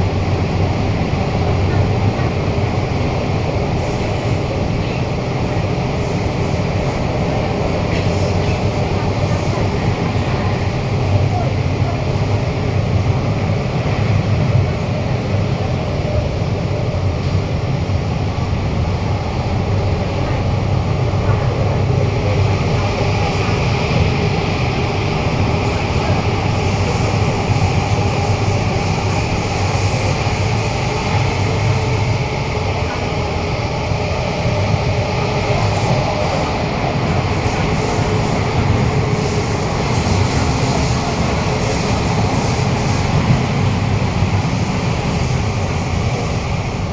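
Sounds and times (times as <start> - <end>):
hiss inside train car: 0.0 - 46.9
wheels rumbling on rail: 0.0 - 46.9.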